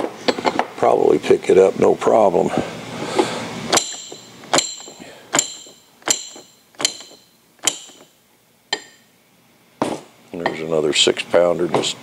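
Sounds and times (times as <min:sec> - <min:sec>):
sharp metallic clicks with ring: 0:03.7 - 0:09.0.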